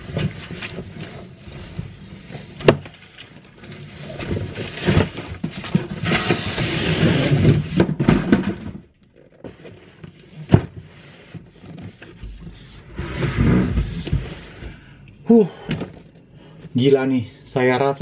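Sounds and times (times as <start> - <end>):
cardboard box scraping on wood: 3.8 - 7.8, 9.6 - 14.8.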